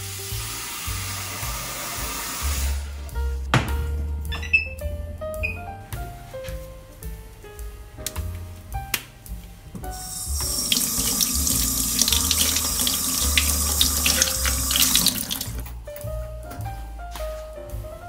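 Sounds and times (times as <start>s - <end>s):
tap water splashing: 10.3s - 15.7s.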